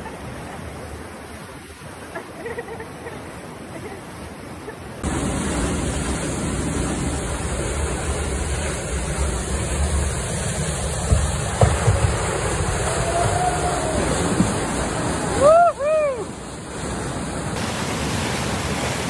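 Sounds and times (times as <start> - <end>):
whitewater rapids roaring: 0.0 - 19.0
kayak splashing: 4.8 - 19.0.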